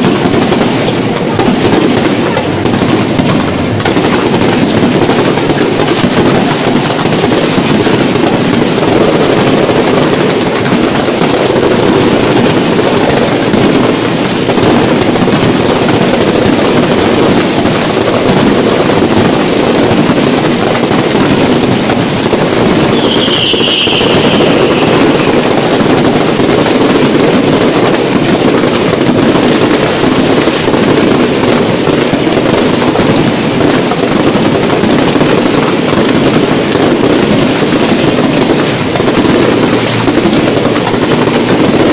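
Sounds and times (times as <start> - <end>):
fireworks bangs and crackle: 0.0 - 41.9
firework whistle: 22.6 - 26.2.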